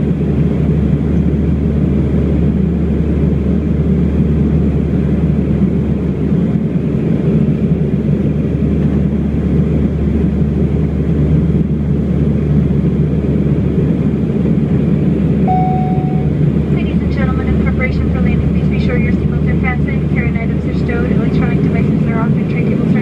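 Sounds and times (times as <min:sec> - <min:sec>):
turboprop engine drone in cabin: 0:00.0 - 0:23.0.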